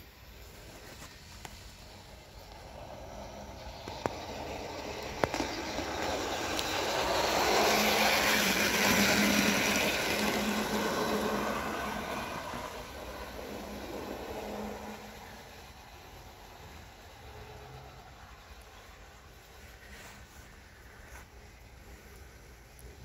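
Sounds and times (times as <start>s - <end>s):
model train motors humming: 0.0s - 23.0s
wheels rattling on rails: 0.5s - 21.0s.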